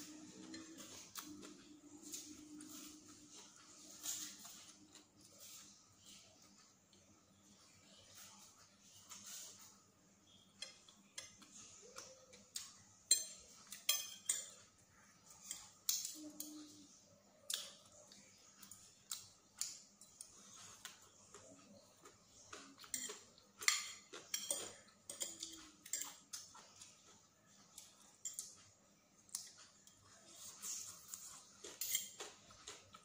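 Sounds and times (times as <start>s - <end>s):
cutlery clinking on a plate: 12.0s - 14.7s, 22.5s - 27.0s, 31.6s - 32.8s.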